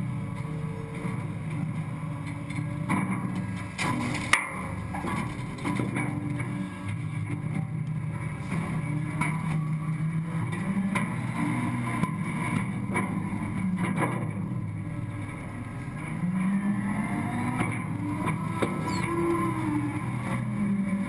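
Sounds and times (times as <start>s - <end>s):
refuse truck engine and hydraulics: 14.8s - 21.0s.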